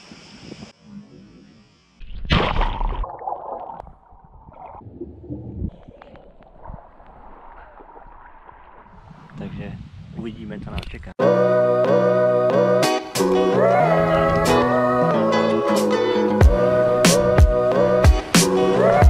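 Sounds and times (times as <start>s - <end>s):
underwater gurgling and bubbling: 2.7s - 9.3s
underwater clicks: 5.6s - 9.4s.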